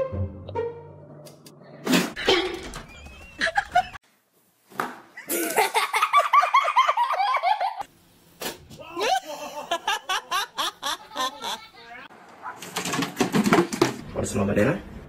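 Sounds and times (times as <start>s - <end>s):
person laughing hard: 5.2s - 7.8s, 8.8s - 11.8s.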